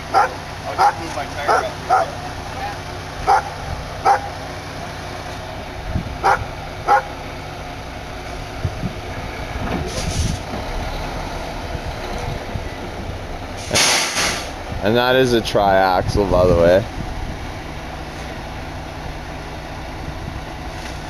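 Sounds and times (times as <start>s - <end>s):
diesel truck engine running: 0.0s - 21.0s
dog barking: 0.1s - 2.2s, 3.2s - 4.3s, 6.2s - 7.1s.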